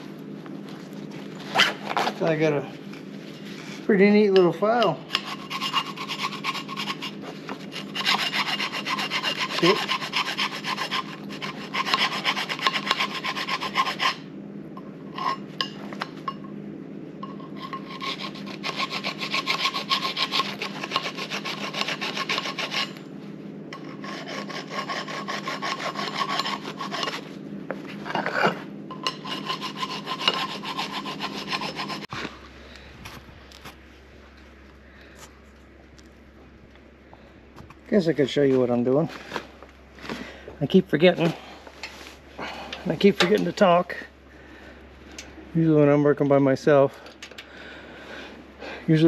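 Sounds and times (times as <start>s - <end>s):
hand file rasping on metal: 4.4s - 14.3s, 17.5s - 23.0s, 23.8s - 27.3s, 28.1s - 32.1s.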